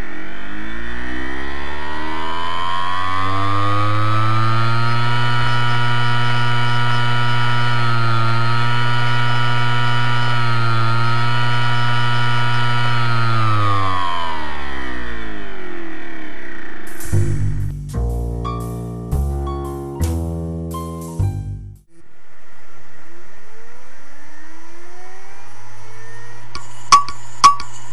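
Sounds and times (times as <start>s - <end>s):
hard disk motor whine: 0.0s - 16.8s, 23.6s - 27.9s.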